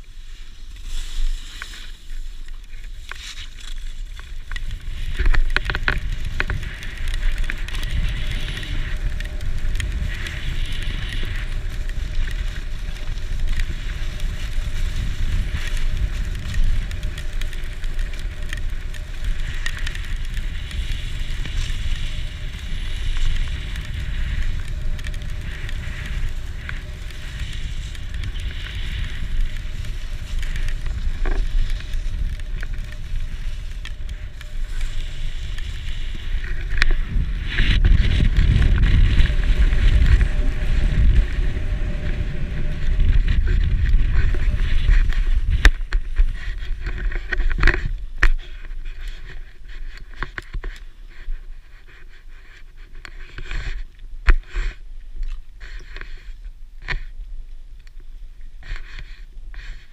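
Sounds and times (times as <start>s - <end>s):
skis scraping over snow: 0.0s - 59.9s
wind buffeting microphone: 4.0s - 51.7s.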